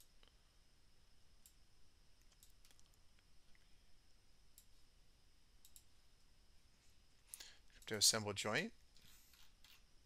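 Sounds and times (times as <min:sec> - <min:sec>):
computer mouse clicks: 0:02.2 - 0:03.0, 0:05.6 - 0:05.9, 0:08.9 - 0:09.8.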